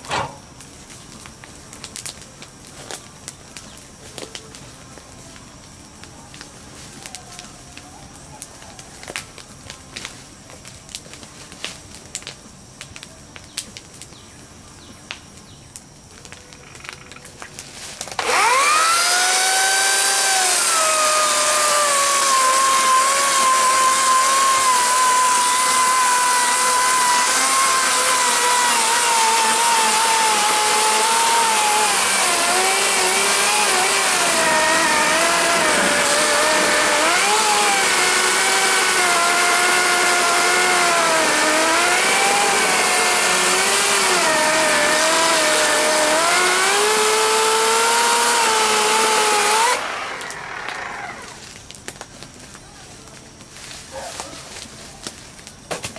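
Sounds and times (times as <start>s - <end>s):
electric chainsaw cutting wood: 0.0s - 0.4s, 18.0s - 51.6s.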